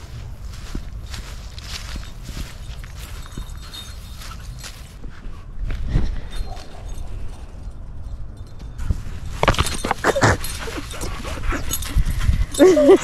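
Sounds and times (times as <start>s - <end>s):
footsteps through dry grass: 0.0s - 7.7s
dog scuffling and rustling: 8.9s - 13.0s.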